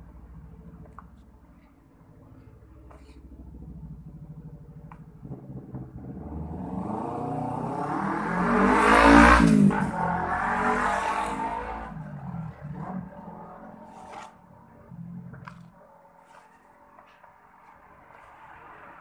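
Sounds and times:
vehicle engine passing by: 2.3 - 15.6.

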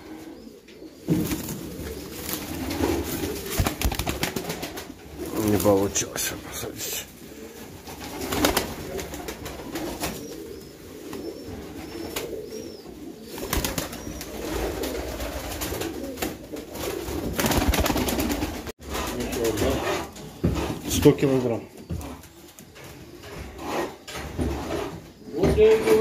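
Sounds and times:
pigeons cooing: 0.0 - 26.0
wings flapping: 1.1 - 6.0, 7.4 - 12.5, 13.2 - 19.8.

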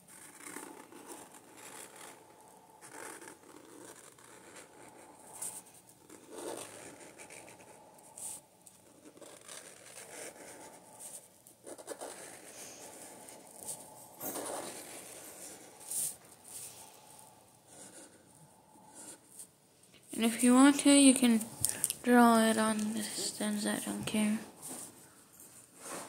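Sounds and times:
marker scratching on paper: 0.1 - 19.5.

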